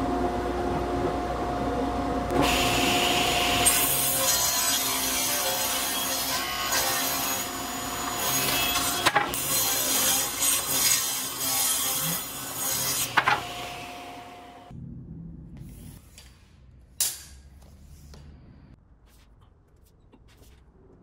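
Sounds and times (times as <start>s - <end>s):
table saw cutting wood: 2.3s - 14.7s.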